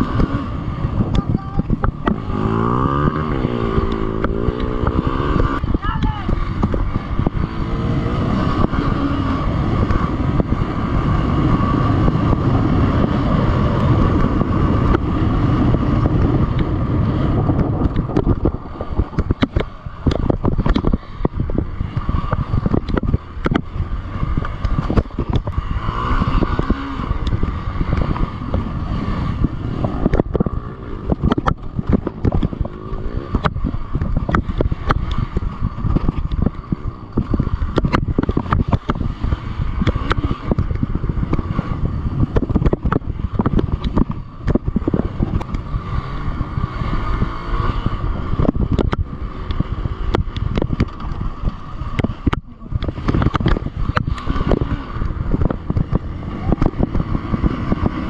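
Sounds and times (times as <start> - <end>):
motorcycle engine running hard: 0.0 - 58.0
motorcycle clattering over rough ground: 13.8 - 46.5.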